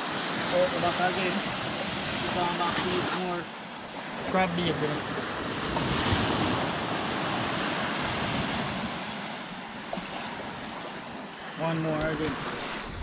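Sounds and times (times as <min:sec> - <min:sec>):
small waves washing onto sand: 0:00.0 - 0:13.0
wind on microphone: 0:04.2 - 0:11.1, 0:11.9 - 0:13.0.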